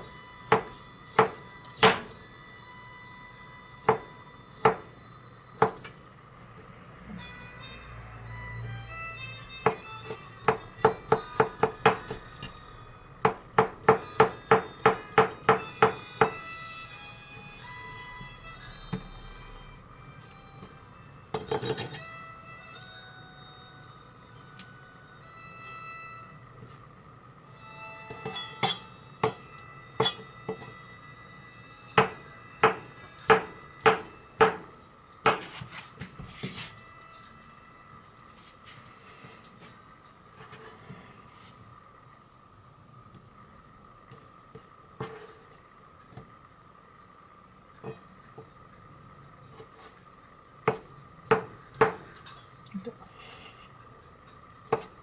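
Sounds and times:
knife chopping on cutting board: 0:00.5 - 0:02.1, 0:13.2 - 0:16.4, 0:32.0 - 0:35.7
background music: 0:07.1 - 0:26.6, 0:27.4 - 0:34.8
knife chopping on plastic board: 0:32.0 - 0:34.6.

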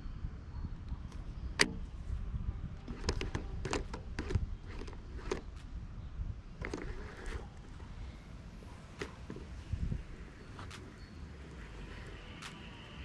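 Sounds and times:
sharp click: 0:01.1 - 0:01.8.

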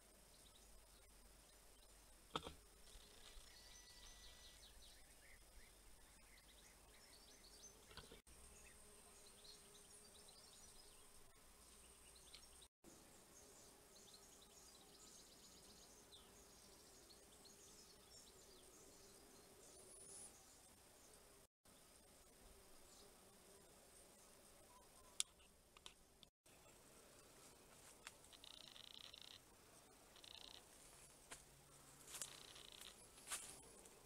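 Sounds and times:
faint high chirps: 0:28.2 - 0:29.4, 0:30.1 - 0:30.7.

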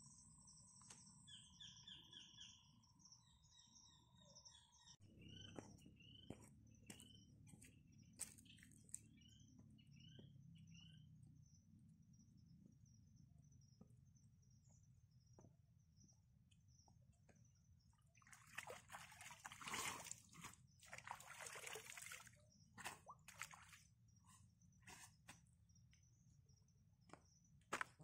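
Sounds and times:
water sloshing and splashing: 0:18.2 - 0:23.9.

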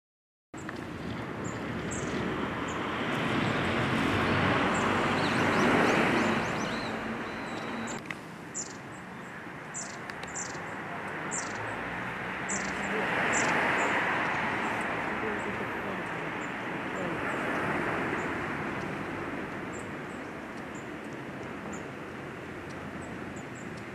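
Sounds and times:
passing traffic rush: 0:00.6 - 0:23.9
birds calling high thin notes: 0:01.4 - 0:11.8.

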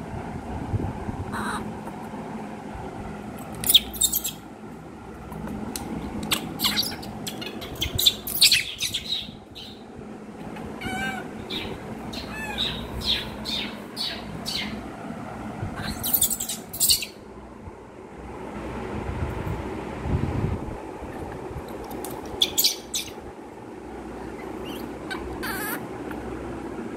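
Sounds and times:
steady low hum: 0:00.0 - 0:26.9
baby monkey squealing: 0:01.3 - 0:01.7, 0:03.6 - 0:04.4, 0:06.2 - 0:09.8, 0:10.8 - 0:14.8, 0:15.8 - 0:17.2, 0:22.3 - 0:23.2, 0:24.4 - 0:25.8.

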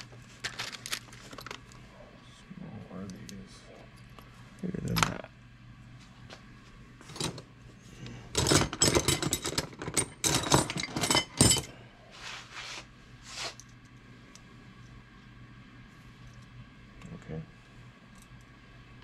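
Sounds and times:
metal tools clinking and clattering: 0:08.4 - 0:11.7.

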